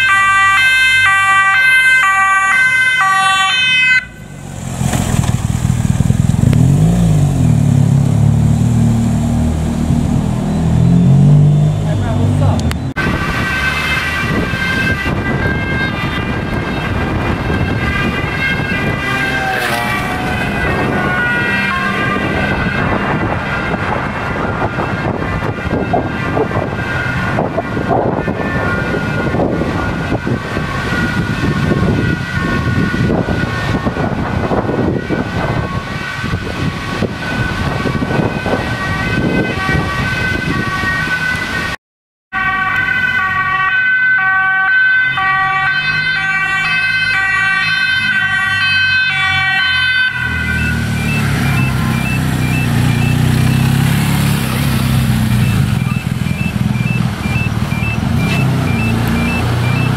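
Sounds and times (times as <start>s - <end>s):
siren: 0.0s - 4.4s, 10.2s - 59.9s
two-tone ambulance siren: 0.0s - 4.4s, 10.2s - 59.9s
motorcycle engine running: 5.0s - 9.4s
wind noise on microphone: 12.6s - 41.8s
short beeps: 55.4s - 59.9s.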